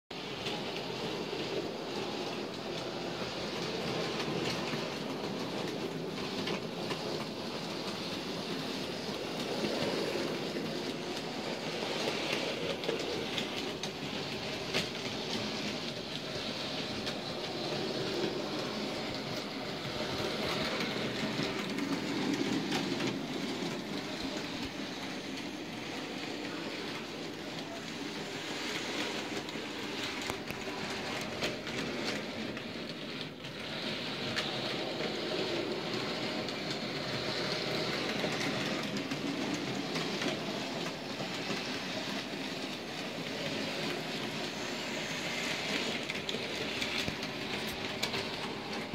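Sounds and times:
model train electric motor: 0:00.2 - 0:48.9.

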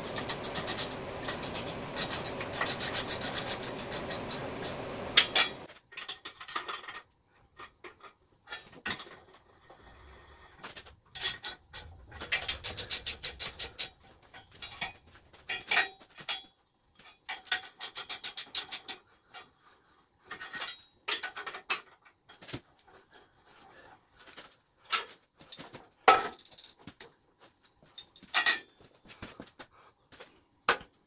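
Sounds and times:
ratchet wrench clicking: 0:00.0 - 0:05.5.

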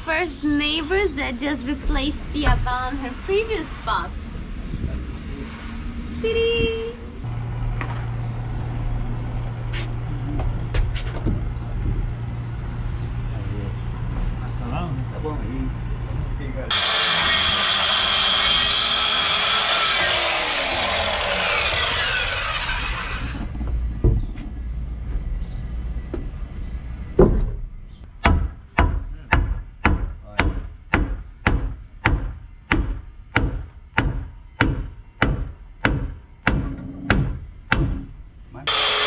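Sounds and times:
circular saw cutting wood: 0:16.7 - 0:23.5, 0:38.7 - 0:39.0.

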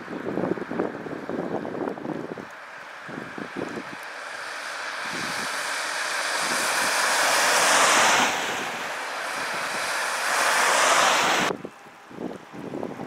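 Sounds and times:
tyres hissing on wet road: 0:00.0 - 0:13.0.

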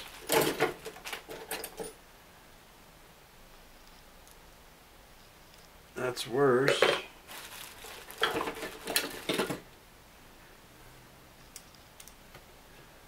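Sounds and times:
faint clicks: 0:11.5 - 0:12.5.

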